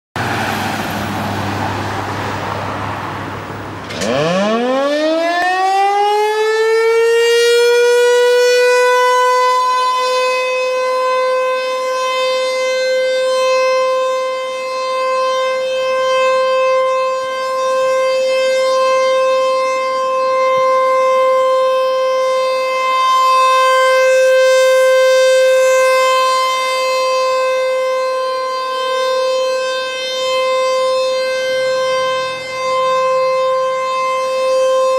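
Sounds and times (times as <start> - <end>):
rotating siren winding up: 4.0 - 10.1.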